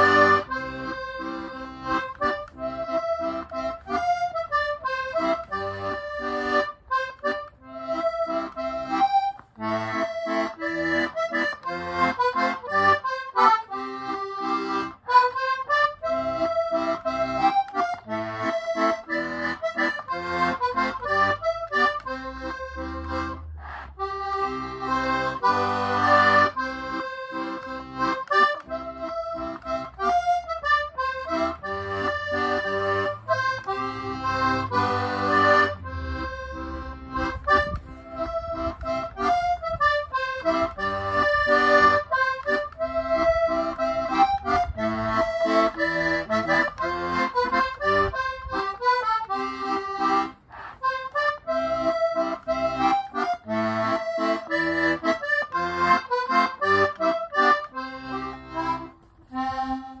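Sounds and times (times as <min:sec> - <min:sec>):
button accordion playing lively tune: 0:00.0 - 1:00.0.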